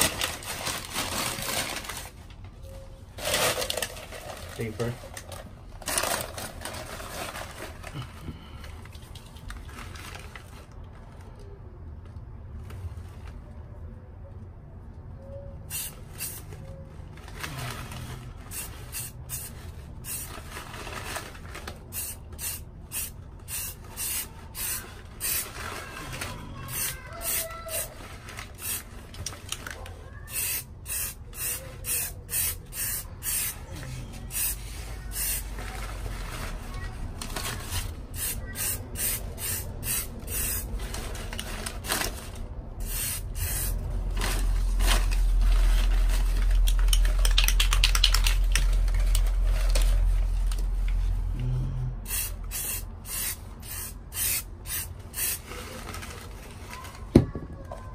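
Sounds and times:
spray paint can hissing: 15.7s - 16.5s, 18.5s - 20.3s, 21.9s - 25.4s, 26.8s - 27.9s, 28.6s - 28.9s, 30.3s - 33.6s, 34.3s - 35.5s, 37.7s - 40.7s, 42.8s - 43.8s, 52.1s - 55.4s.

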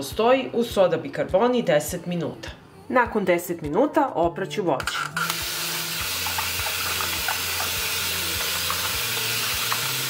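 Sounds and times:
tap water running into bowl: 5.1s - 10.0s.

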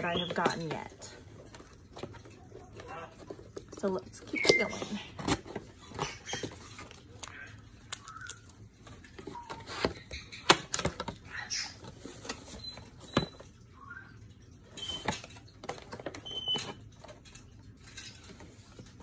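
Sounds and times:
packaging clicks and crinkles: 0.0s - 13.3s.

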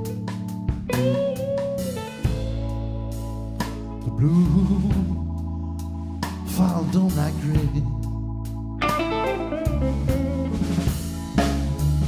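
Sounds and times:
electric guitar note bending: 0.0s - 3.1s, 8.8s - 11.2s
blues band playing: 0.0s - 5.2s, 6.2s - 12.0s.

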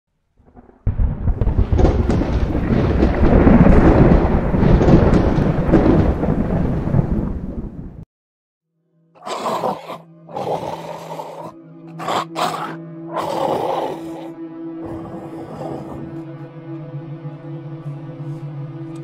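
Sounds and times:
thunder-like rumble with cracks: 0.4s - 8.0s.

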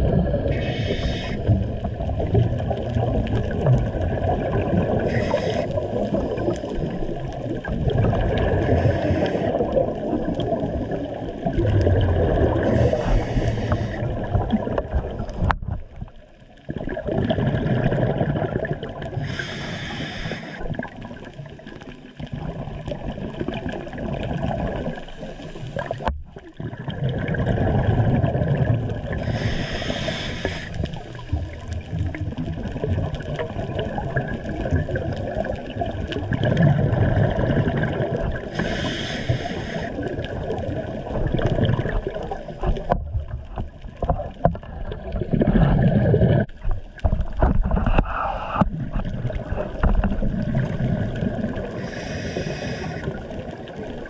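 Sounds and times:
exhaled bubbles gurgling: 0.0s - 54.0s
regulator inhalation hiss: 0.5s - 1.6s, 5.1s - 5.8s, 8.8s - 9.6s, 12.7s - 14.0s, 19.2s - 20.7s, 29.2s - 31.0s, 38.5s - 40.0s, 51.8s - 53.2s.

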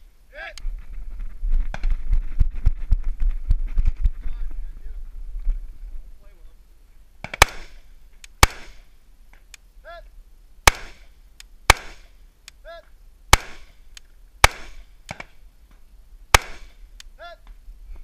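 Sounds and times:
rifle shots: 7.2s - 8.9s, 10.6s - 11.1s, 11.7s - 12.2s, 13.3s - 13.8s, 14.4s - 15.4s, 16.3s - 16.9s.

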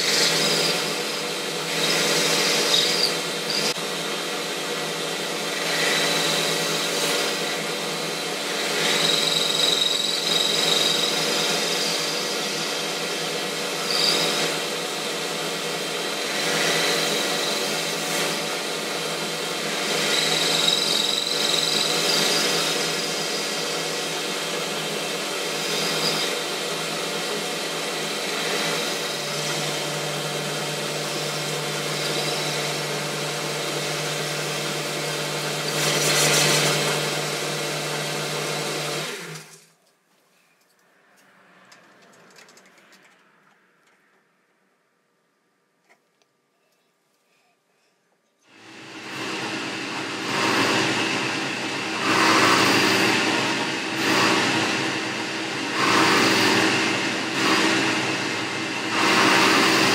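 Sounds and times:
lathe tool cutting hiss: 0.0s - 3.8s, 4.9s - 39.5s, 48.5s - 59.9s
lathe motor hum: 0.0s - 39.6s, 48.5s - 59.9s.

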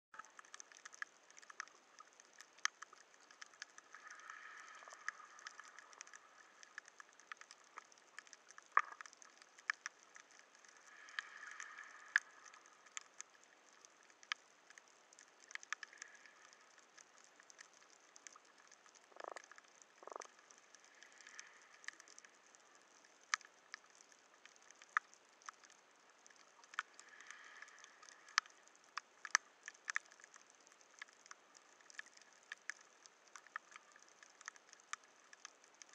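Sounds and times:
underwater clicks and crackles: 0.2s - 35.9s
underwater hiss: 10.6s - 12.9s.

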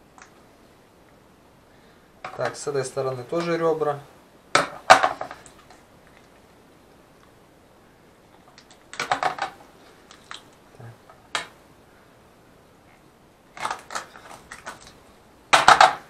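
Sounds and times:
bones cracking and snapping: 8.4s - 10.6s, 13.5s - 16.0s.

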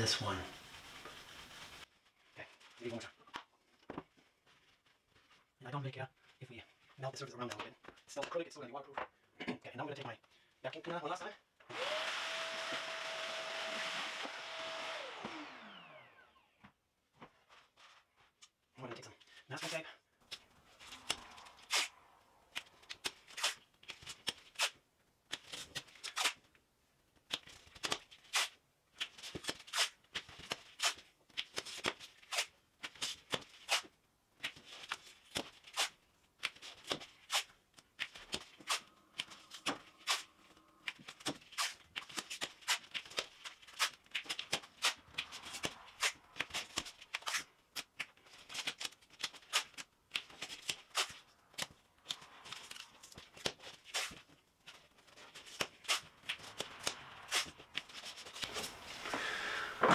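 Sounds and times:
masking tape tearing: 20.3s - 26.5s, 27.3s - 59.9s.

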